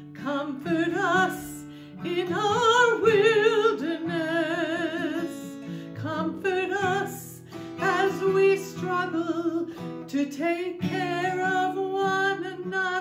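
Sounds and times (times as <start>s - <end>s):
acoustic guitar: 0.0s - 13.0s
woman singing with vibrato: 0.0s - 13.0s.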